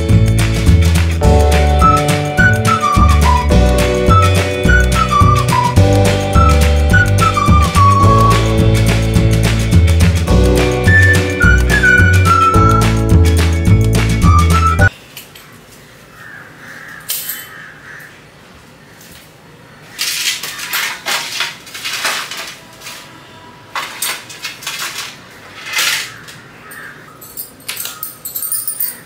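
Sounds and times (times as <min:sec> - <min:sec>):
household items scraping and clattering: 0:20.0 - 0:26.4.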